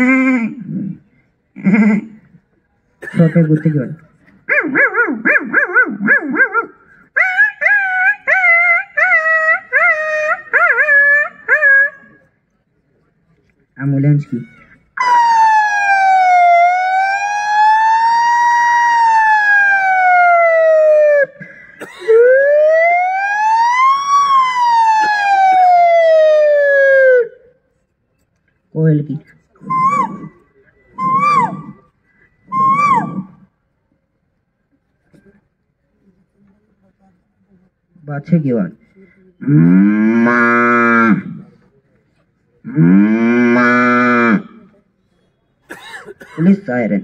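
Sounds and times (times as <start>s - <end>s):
man imitating animal calls: 0.0s - 1.0s, 1.6s - 2.4s, 4.5s - 12.2s, 29.6s - 31.9s, 32.5s - 33.5s
person imitating a siren: 0.0s - 1.0s, 4.5s - 12.2s, 15.0s - 21.4s, 22.1s - 27.4s, 29.6s - 33.5s.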